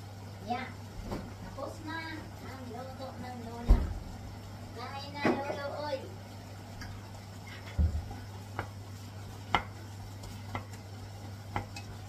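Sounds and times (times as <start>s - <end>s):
wooden spoon stirring in pot: 6.9s - 12.0s.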